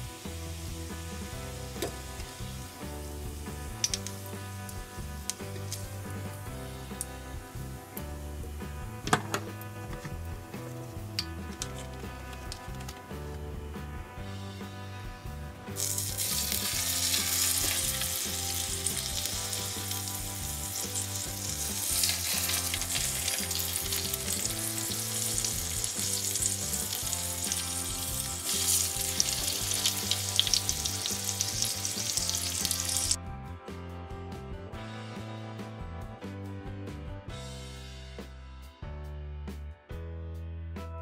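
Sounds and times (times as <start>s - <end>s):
bacon sizzling in a frying pan: 0.0s - 8.8s, 15.7s - 33.2s.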